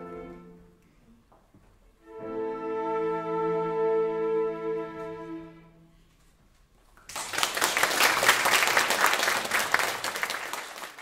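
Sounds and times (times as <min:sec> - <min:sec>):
audience applause: 0:07.1 - 0:11.0.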